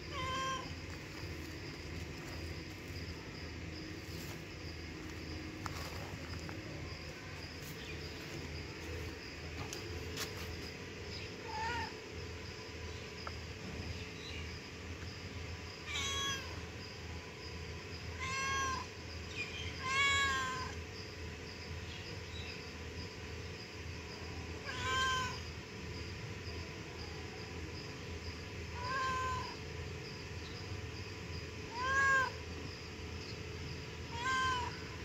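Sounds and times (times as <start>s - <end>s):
cat meowing: 0.1s - 0.7s, 15.8s - 16.5s, 18.2s - 18.9s, 19.8s - 20.8s, 24.7s - 25.4s, 28.8s - 29.6s, 31.7s - 32.4s, 34.1s - 34.8s.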